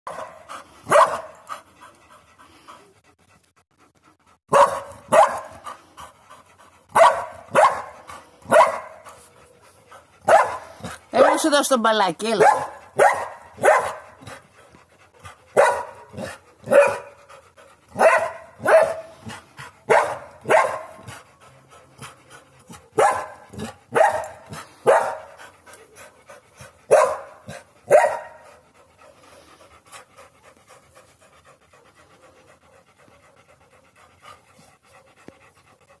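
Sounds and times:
dog barking: 0:00.1 - 0:01.4, 0:04.5 - 0:05.6, 0:06.9 - 0:09.0, 0:10.2 - 0:11.5, 0:12.4 - 0:14.2, 0:15.6 - 0:17.1, 0:18.0 - 0:19.1, 0:19.9 - 0:21.0, 0:23.0 - 0:25.3, 0:26.9 - 0:28.4
dog panting softly: 0:00.3 - 0:36.0.

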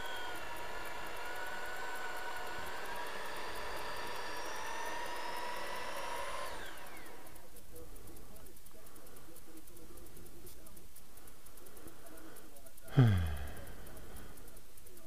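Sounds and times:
electric drill whining: 0:00.0 - 0:07.5.

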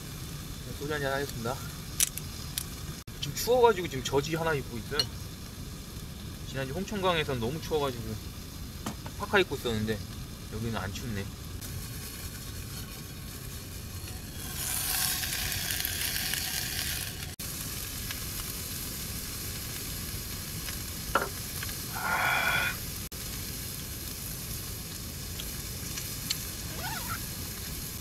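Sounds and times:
meat sizzling in a frying pan: 0:00.0 - 0:28.0.

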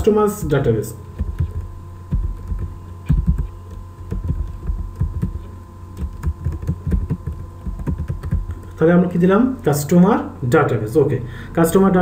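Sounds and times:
steady electrical hum: 0:00.0 - 0:12.0
keyboard keystrokes: 0:01.2 - 0:08.7.

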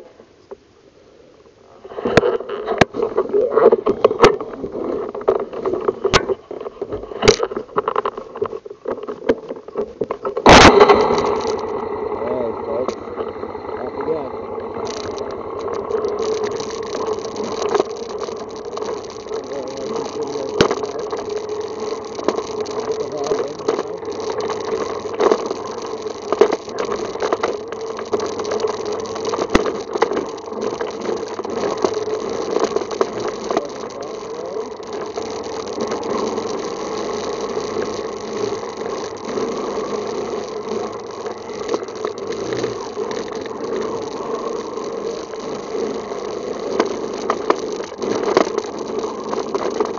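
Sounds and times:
rattle: 0:01.8 - 0:49.9
quad bike engine running: 0:10.4 - 0:49.9.

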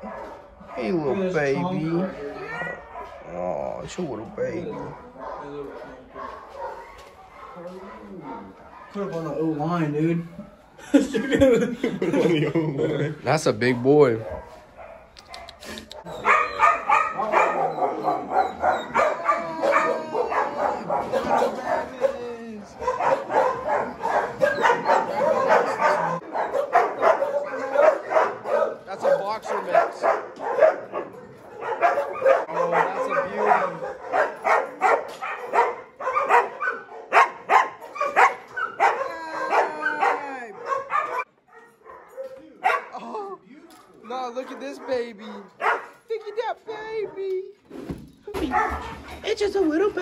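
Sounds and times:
puppies barking and yipping: 0:02.2 - 0:03.3, 0:04.7 - 0:09.4, 0:13.5 - 0:43.0, 0:44.0 - 0:47.2, 0:48.4 - 0:49.2
puppy whining: 0:02.2 - 0:03.5, 0:15.3 - 0:22.0, 0:22.8 - 0:26.2.

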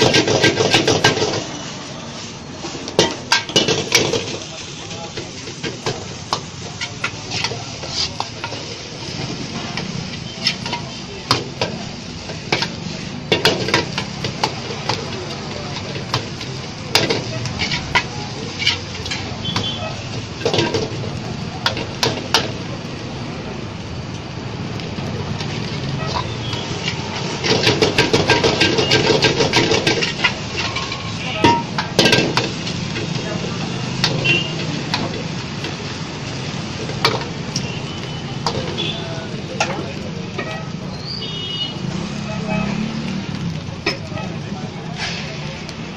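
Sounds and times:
food sizzling in a wok: 0:00.0 - 0:45.9
metal spatula clanking: 0:02.9 - 0:04.4, 0:10.1 - 0:11.8, 0:15.7 - 0:21.0, 0:25.4 - 0:32.8.

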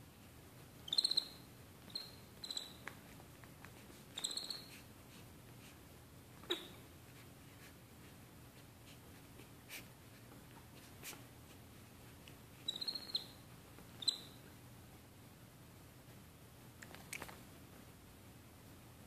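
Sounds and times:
high-pitched animal squeaks: 0:00.8 - 0:02.8, 0:04.2 - 0:04.8, 0:06.4 - 0:06.8, 0:12.6 - 0:13.4, 0:14.0 - 0:14.4.

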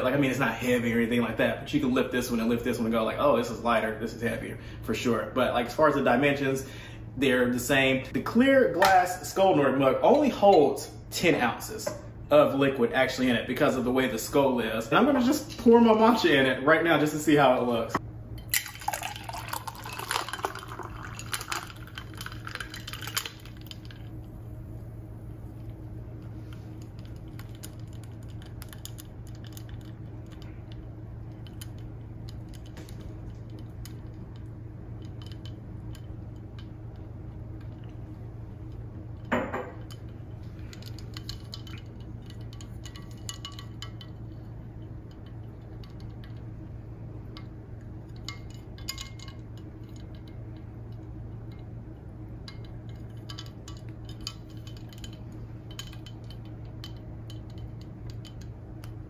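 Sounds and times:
steady low hum: 0:00.0 - 0:59.0
glass mug and infuser clinking: 0:18.5 - 0:24.1, 0:39.3 - 0:44.3, 0:48.1 - 0:51.6, 0:52.5 - 0:59.0.

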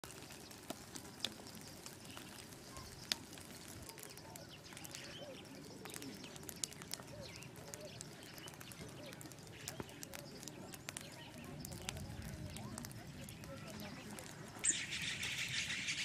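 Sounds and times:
small animal chirps and calls: 0:14.6 - 0:16.0.

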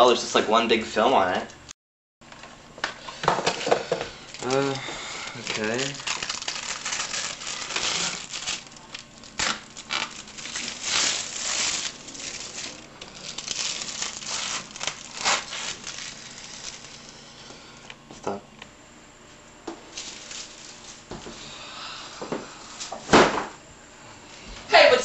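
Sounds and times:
plastic film crinkling: 0:04.2 - 0:17.3, 0:19.9 - 0:21.1.

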